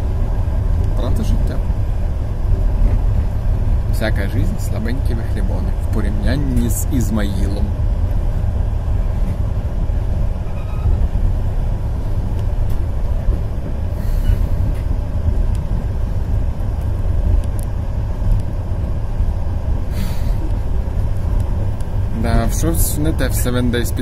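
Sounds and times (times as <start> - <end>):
train wheels rumbling: 0.0 - 24.0
faint clicks: 16.8 - 17.7.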